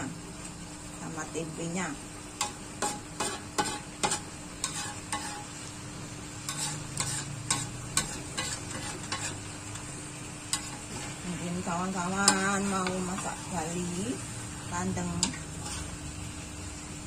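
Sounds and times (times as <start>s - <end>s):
frying sizzle: 0.0s - 17.0s
metal spatula scraping a wok: 2.4s - 5.7s, 6.3s - 9.5s, 10.5s - 13.8s, 15.0s - 16.1s.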